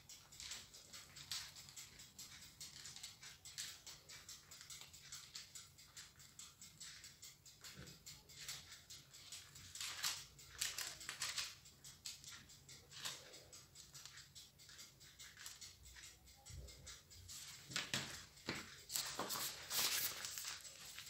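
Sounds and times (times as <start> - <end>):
plastic piping bag crinkling: 18.9 - 21.0.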